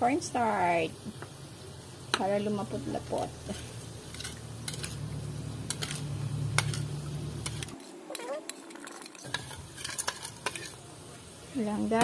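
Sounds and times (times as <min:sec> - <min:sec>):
steady low hum: 0:00.0 - 0:07.8.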